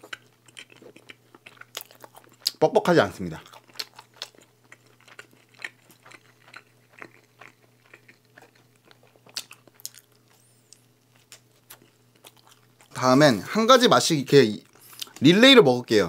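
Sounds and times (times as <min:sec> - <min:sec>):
chewing with mouth clicks: 0:00.0 - 0:02.6, 0:03.4 - 0:13.0
faint steady hum: 0:00.0 - 0:16.0
bite crunch: 0:03.4 - 0:12.9.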